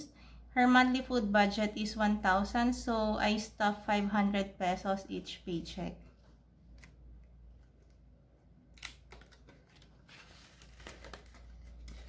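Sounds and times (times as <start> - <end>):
binder page turning: 8.8 - 12.0
paper rustling: 8.8 - 12.0.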